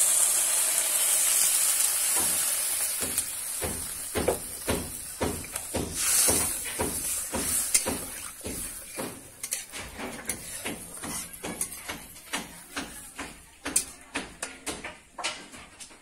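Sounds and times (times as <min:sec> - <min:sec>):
frying sizzle: 0:00.0 - 0:14.0
metal spatula scraping a wok: 0:05.5 - 0:12.3.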